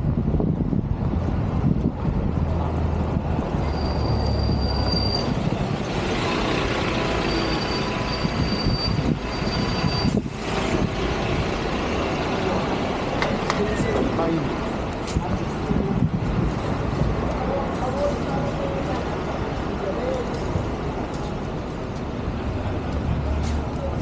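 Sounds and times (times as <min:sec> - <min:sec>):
train rumbling on rails: 0:00.0 - 0:24.0
high-pitched wheel squeal: 0:03.6 - 0:10.8.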